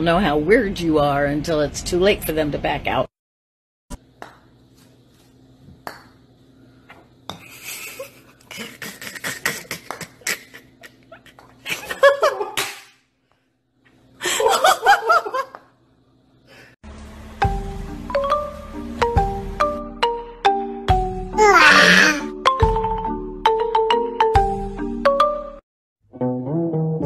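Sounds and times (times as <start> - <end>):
person laughing: 7.4 - 12.6.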